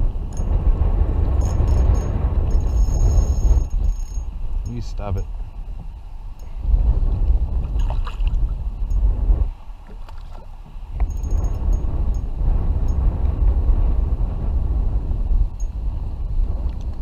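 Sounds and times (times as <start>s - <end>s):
wind buffeting microphone: 0.0s - 17.0s
water sloshing against kayak: 9.4s - 11.1s.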